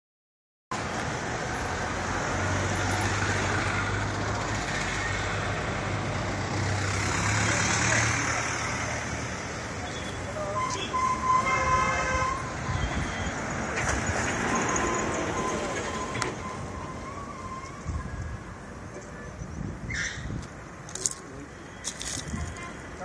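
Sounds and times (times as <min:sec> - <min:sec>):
vehicle passing: 0:01.1 - 0:18.0
vehicle horn: 0:09.8 - 0:13.3.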